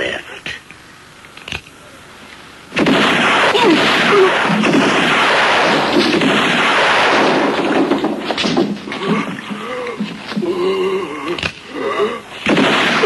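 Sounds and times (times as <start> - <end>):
gunfire: 2.7 - 9.8, 12.4 - 13.0.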